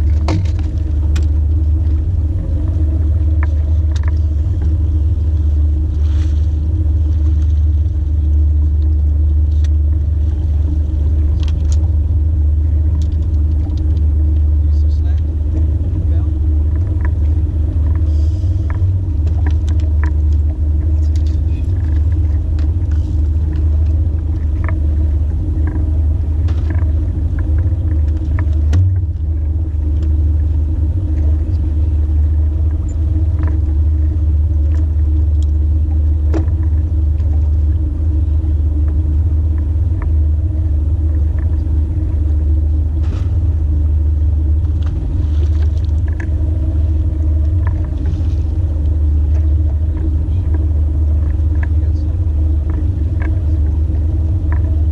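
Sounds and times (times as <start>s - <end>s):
boat motor rumbling: 0.0s - 54.9s
gear knocking and clicking: 44.5s - 54.9s.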